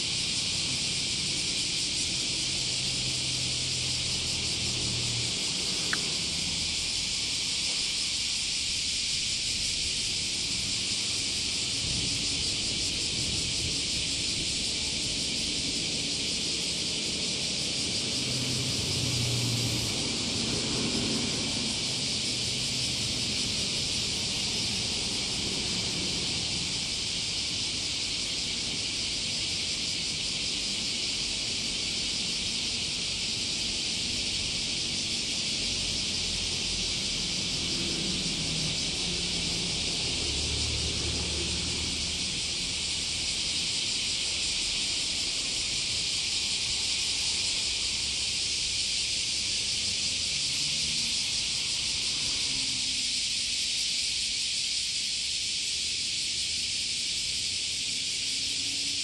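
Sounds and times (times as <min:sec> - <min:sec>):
high-pitched outdoor hiss: 0:00.0 - 0:59.0.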